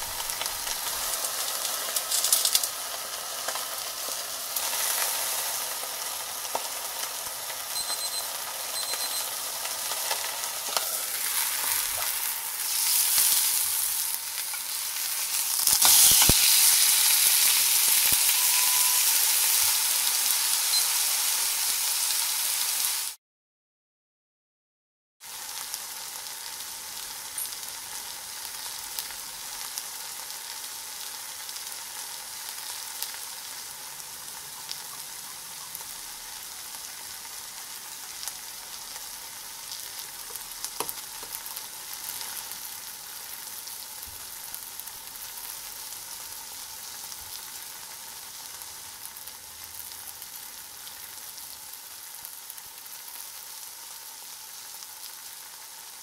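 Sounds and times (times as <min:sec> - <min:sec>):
steady hiss: 0:00.0 - 0:03.6
faint crackles: 0:00.0 - 0:05.0.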